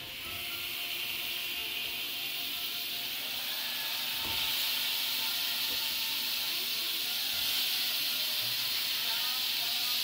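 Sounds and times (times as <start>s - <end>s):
food sizzling in a wok: 0.0s - 10.0s.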